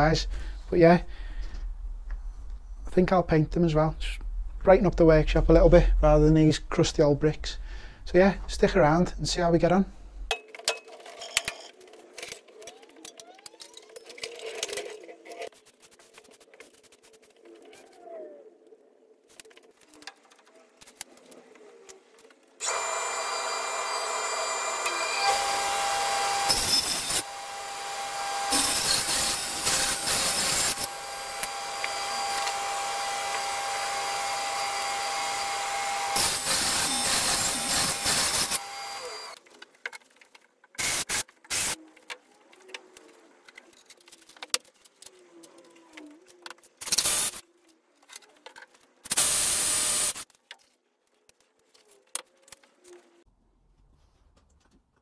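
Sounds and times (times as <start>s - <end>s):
cordless drill driving screws: 22.6s - 39.4s
table saw cutting board: 22.6s - 39.4s.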